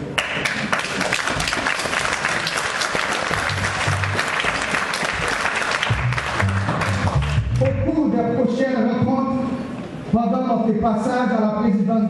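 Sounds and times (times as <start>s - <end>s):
congregation applauding: 0.1s - 7.8s.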